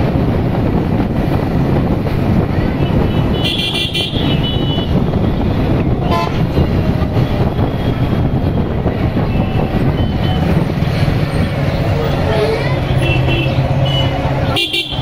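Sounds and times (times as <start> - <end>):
road traffic rumble: 0.0 - 15.0
vehicle horn tooting: 6.0 - 6.6, 13.0 - 15.0.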